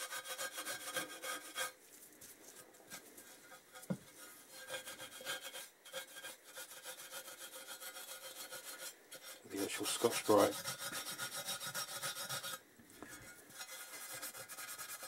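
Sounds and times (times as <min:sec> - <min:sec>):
abrasive pad scrubbing metal: 0:04.5 - 0:12.6.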